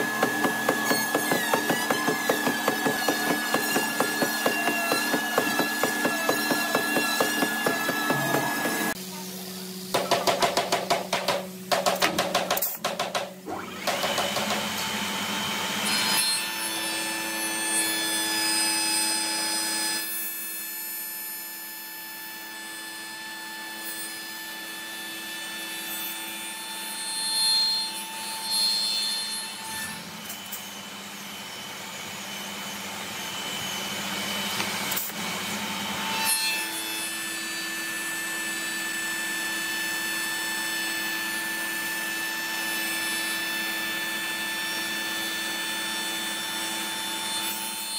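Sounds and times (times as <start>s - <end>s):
wood shaper cutting wood: 0.0s - 9.0s.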